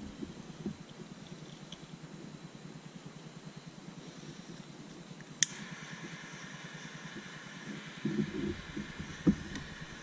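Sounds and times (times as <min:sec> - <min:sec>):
rustling and knocking of wiring: 0:00.0 - 0:02.0, 0:08.0 - 0:10.0
low steady hum: 0:00.0 - 0:10.0
sharp click: 0:05.4 - 0:05.6.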